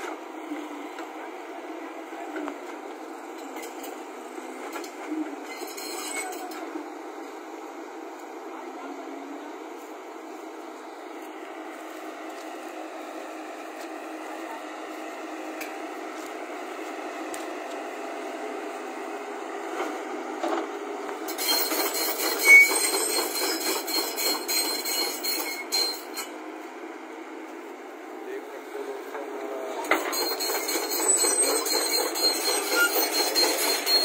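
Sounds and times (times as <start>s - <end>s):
excavator diesel engine running: 0.0s - 34.0s
crawler tracks clanking and squealing: 2.3s - 6.9s, 19.8s - 26.4s, 29.0s - 34.0s.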